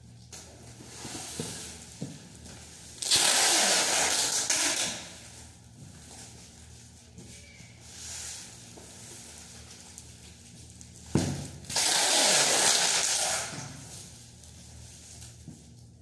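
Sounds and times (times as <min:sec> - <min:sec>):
stretch film ripping off roll: 0:03.0 - 0:05.1, 0:11.7 - 0:13.9.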